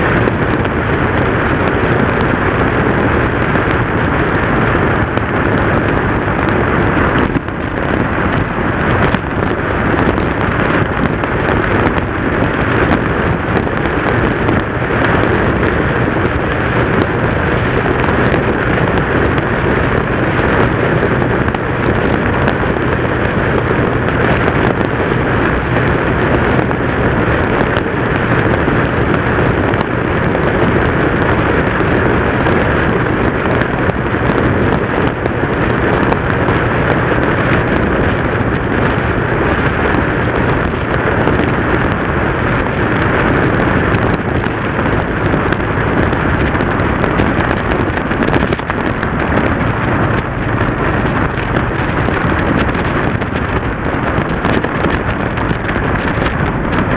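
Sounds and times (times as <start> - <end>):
motorcycle engine drone: 0.0 - 56.9
wind rush on microphone: 0.0 - 56.9.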